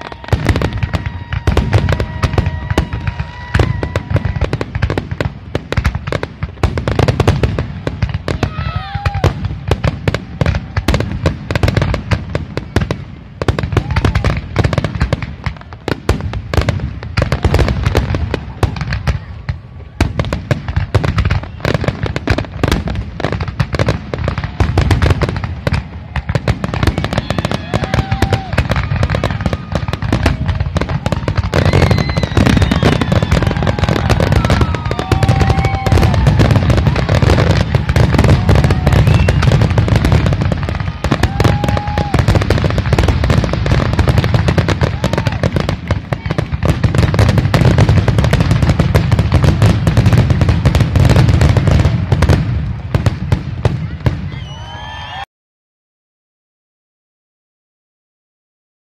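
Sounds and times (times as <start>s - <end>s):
fireworks whistles: 0.0s - 5.0s, 20.7s - 46.3s, 53.8s - 55.3s
fireworks crackle: 0.0s - 55.2s.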